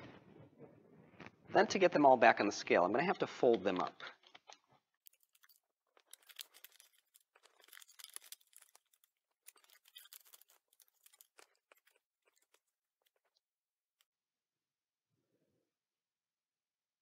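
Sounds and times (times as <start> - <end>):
paper rustling and crinkling: 4.3 - 13.3.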